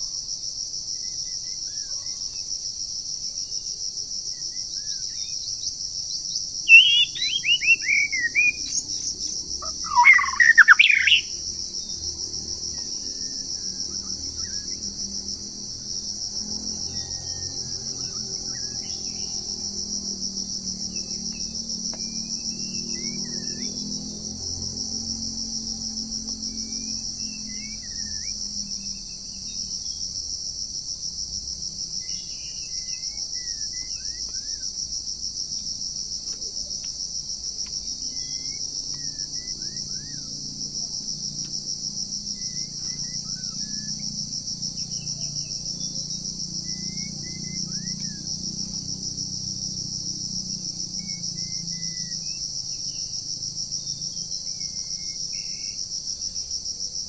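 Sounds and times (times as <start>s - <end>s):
high-pitched insect drone: 0.0s - 57.0s
songbird whistled phrases: 6.7s - 8.8s, 9.8s - 11.3s.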